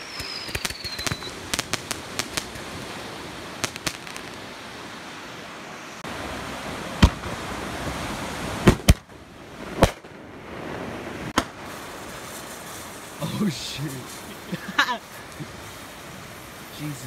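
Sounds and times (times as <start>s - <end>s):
fireworks bangs: 0.0s - 4.7s, 6.9s - 13.1s
steady rushing hiss: 0.0s - 17.0s.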